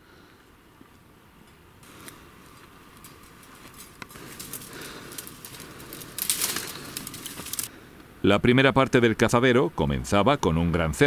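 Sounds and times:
footsteps through dry grass: 1.8s - 7.7s
twigs snapping: 1.8s - 7.7s.

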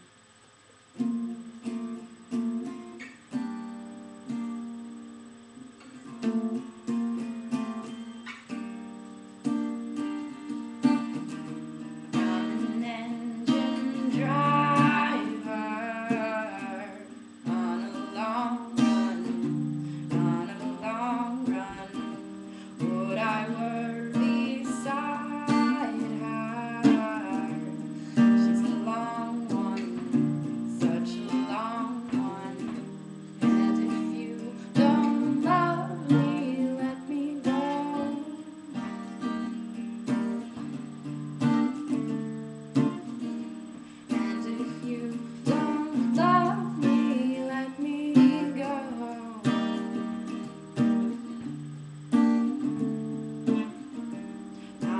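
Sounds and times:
acoustic guitar strummed: 0.0s - 54.9s
person singing: 12.1s - 39.0s, 44.1s - 50.0s.

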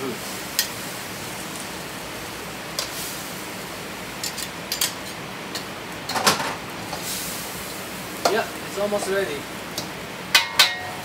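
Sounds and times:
frying hiss: 0.0s - 11.0s
utensils scraping a wok: 4.2s - 5.7s.

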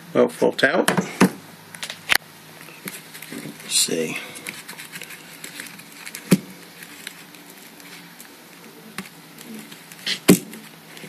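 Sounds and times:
ribbon and card rustling: 2.6s - 11.0s.

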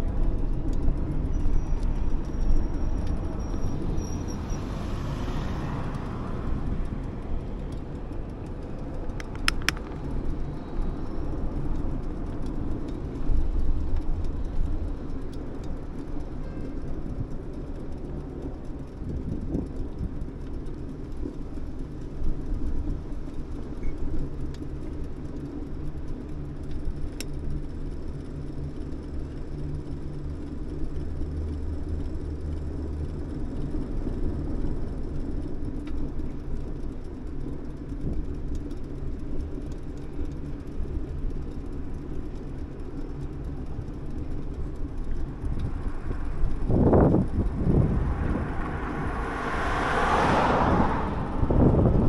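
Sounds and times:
bicycle tyres rolling on asphalt: 0.0s - 52.0s
light clicks: 5.3s - 16.4s
wind on microphone: 45.4s - 52.0s.

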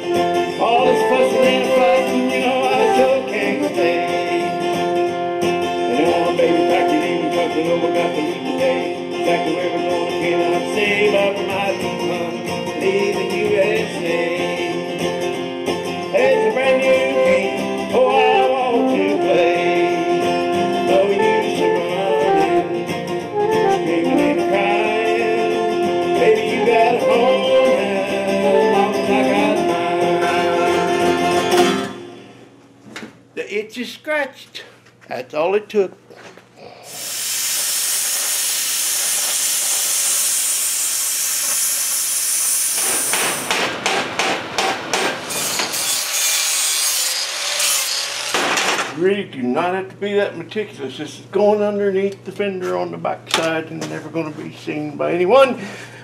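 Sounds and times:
man singing: 0.0s - 5.0s, 5.7s - 15.0s, 16.0s - 22.8s, 23.4s - 31.4s
acoustic guitar: 0.0s - 32.8s.

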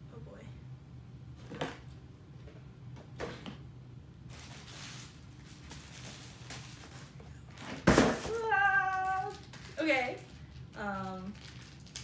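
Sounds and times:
low steady hum: 0.0s - 12.0s
plastic bag crinkling: 4.3s - 12.0s.

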